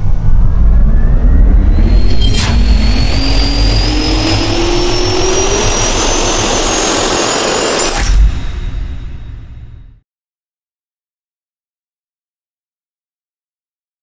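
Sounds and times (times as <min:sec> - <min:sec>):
deep hit: 0:00.0 - 0:10.0
jet turbine roar and whine: 0:00.0 - 0:10.0.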